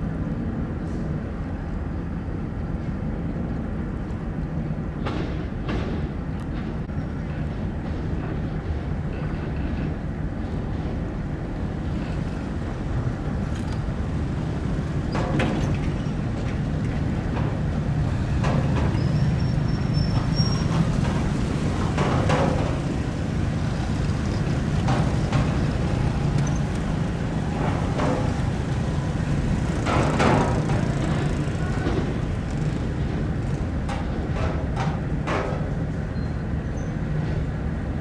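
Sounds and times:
large engine rumbling: 0.0 - 38.0
knocks and clatter: 14.6 - 36.0.

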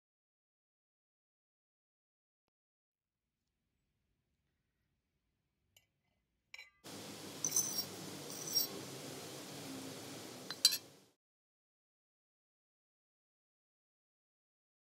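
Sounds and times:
low background hum: 6.9 - 11.1
fork clinking against plate: 7.4 - 8.8, 10.5 - 10.9.

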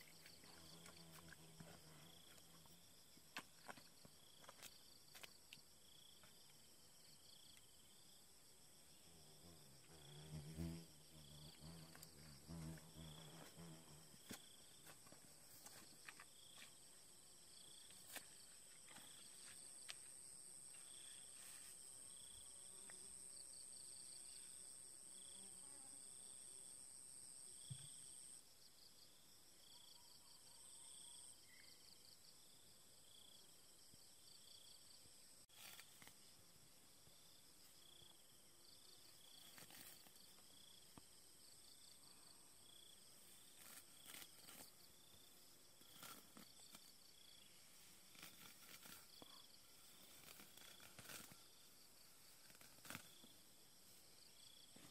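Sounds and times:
insects trilling: 35.4 - 54.9.

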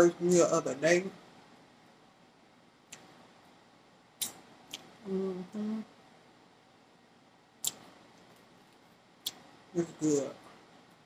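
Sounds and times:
person humming while chewing: 5.1 - 5.9.

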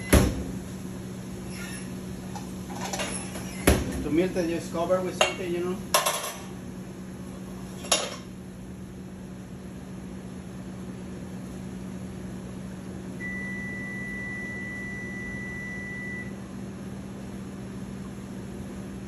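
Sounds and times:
microwave oven long beep: 0.0 - 0.4, 12.6 - 18.0
kitchen hum: 0.0 - 19.0.

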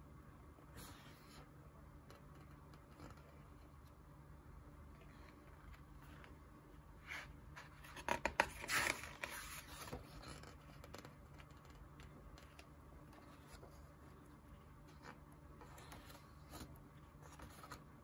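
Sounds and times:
faint steady hum: 0.0 - 18.0
pages turning and rustling: 7.0 - 18.0.

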